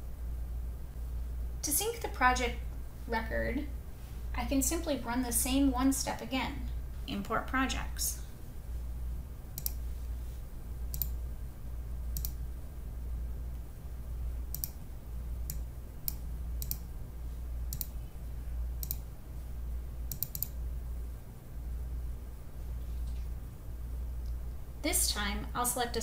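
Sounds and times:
steady low hum: 0:00.0 - 0:26.0
computer mouse clicking: 0:09.5 - 0:09.8, 0:10.9 - 0:11.2, 0:12.1 - 0:12.4, 0:14.5 - 0:14.8, 0:15.4 - 0:16.9, 0:17.7 - 0:18.0, 0:18.8 - 0:19.1, 0:20.1 - 0:20.6.

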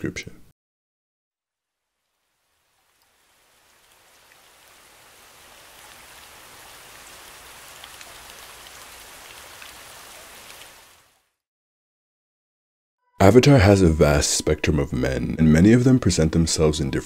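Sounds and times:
steady rain falling: 0:01.7 - 0:11.4.

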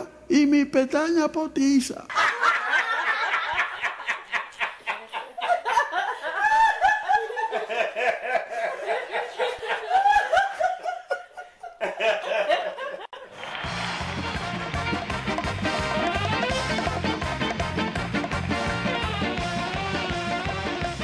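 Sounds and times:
group of people laughing: 0:02.1 - 0:13.5.

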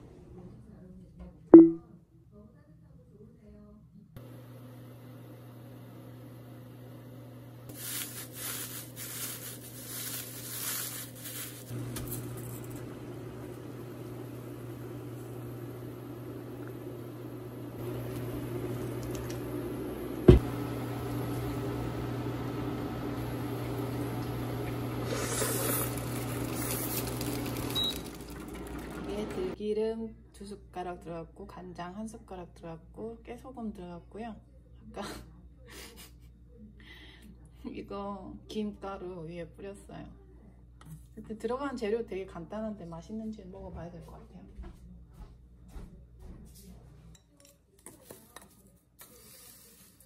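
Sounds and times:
cooktop electrical hum: 0:00.0 - 0:50.0
water boiling in a pot: 0:07.7 - 0:29.6.

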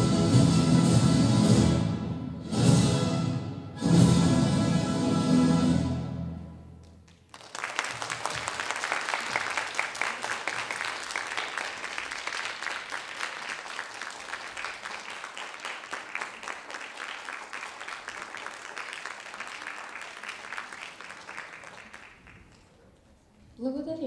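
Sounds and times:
ballet music: 0:00.0 - 0:06.8
audience applause: 0:07.1 - 0:22.9.

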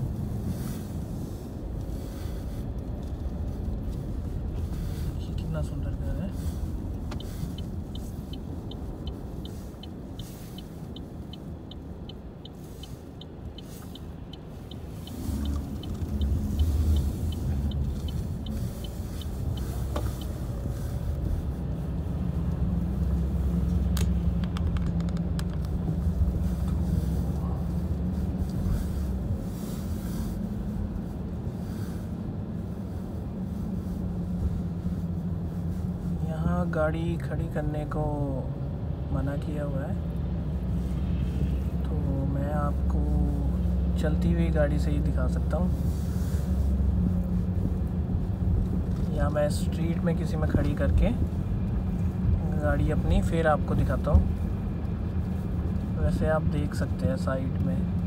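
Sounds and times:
turn signal ticking: 0:00.0 - 0:31.6
car engine and tyre rumble: 0:00.0 - 0:58.0.

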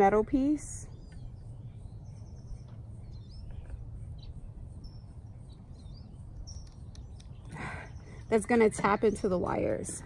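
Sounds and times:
faint bird chirps: 0:00.0 - 0:09.3
steady low rumble: 0:00.0 - 0:10.0.

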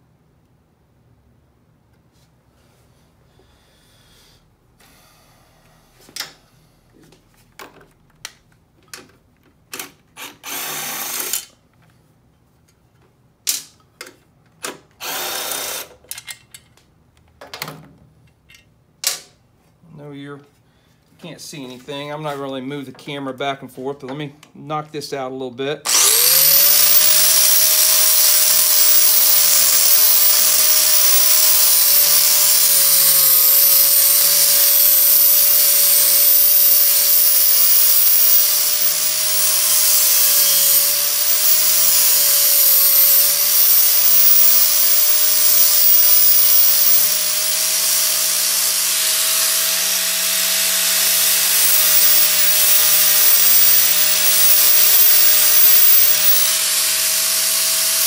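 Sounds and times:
rotary tool grinding metal: 0:25.9 - 0:58.0.

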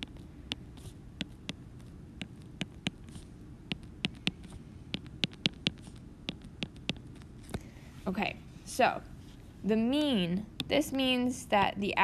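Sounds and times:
faint low hum: 0:00.0 - 0:12.0
stylus tapping on glass screen: 0:03.7 - 0:07.0.

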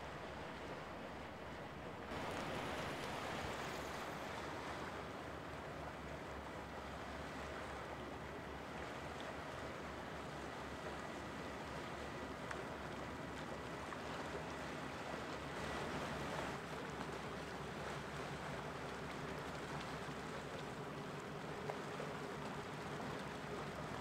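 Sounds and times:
water washing: 0:00.0 - 0:05.3
ship engine rumble: 0:00.0 - 0:24.0.

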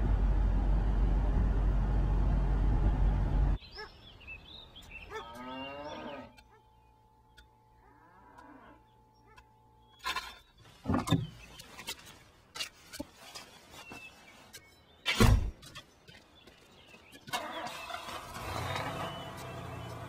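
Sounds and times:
steady rumbling noise: 0:00.0 - 0:03.6.

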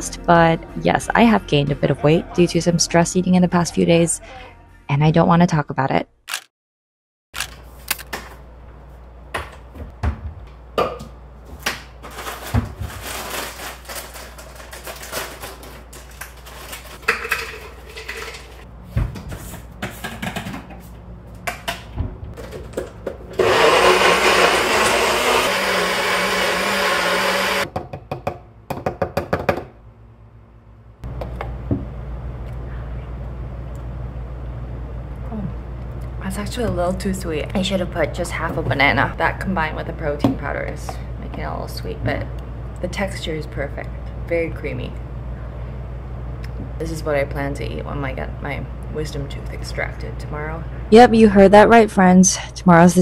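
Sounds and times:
containers and utensils clattering: 0:12.1 - 0:18.6
blender running: 0:23.3 - 0:27.7.

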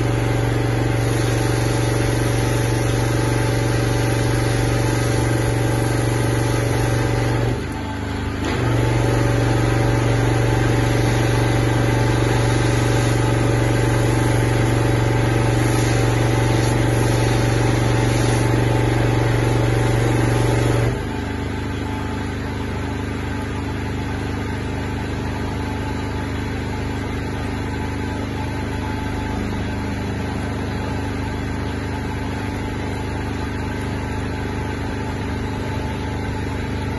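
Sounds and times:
surface cleaner on roof tiles: 0:00.0 - 0:24.0
pressure washer engine running: 0:00.0 - 0:36.9.

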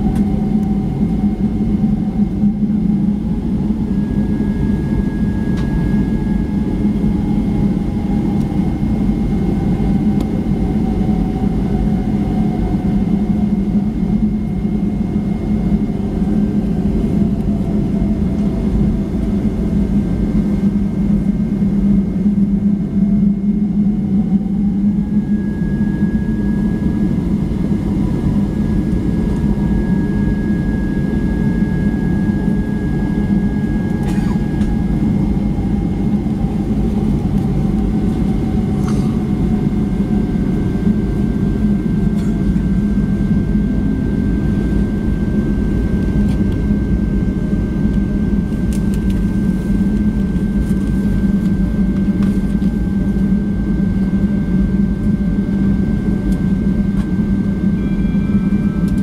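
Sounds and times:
aircraft cabin rumble and hum: 0:00.0 - 0:59.0
faint whining tones: 0:00.0 - 0:59.0.

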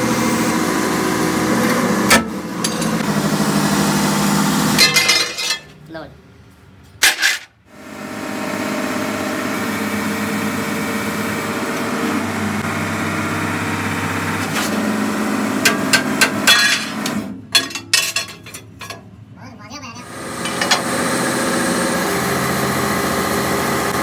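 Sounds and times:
forging press humming: 0:00.0 - 0:05.8, 0:07.8 - 0:19.1, 0:20.1 - 0:24.0
sharp metal knocks and clanks: 0:15.6 - 0:19.1.

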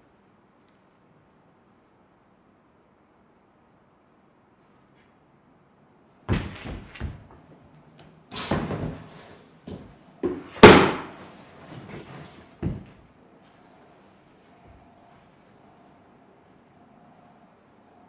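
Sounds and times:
body thudding on wooden floor: 0:06.3 - 0:07.4, 0:12.6 - 0:13.0.

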